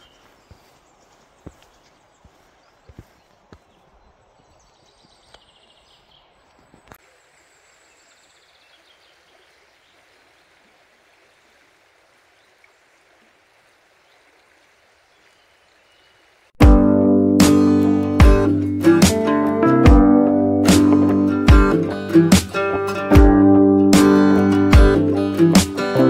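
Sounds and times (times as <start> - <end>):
footsteps on dirt path: 0.0 - 7.0
river flowing: 7.0 - 16.6
acoustic guitar music: 16.6 - 26.0.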